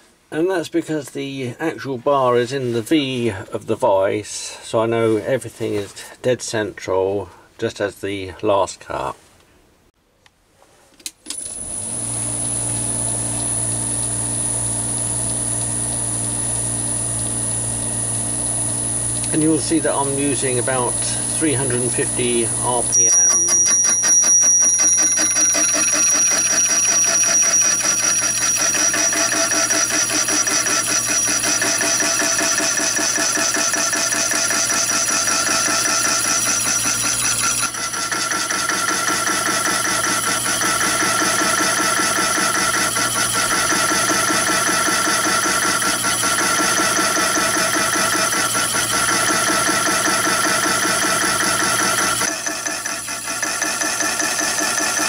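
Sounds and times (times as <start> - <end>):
lathe running: 11.4 - 55.0
steady high tone: 19.3 - 31.7
saw ringing cut in metal: 19.4 - 55.0.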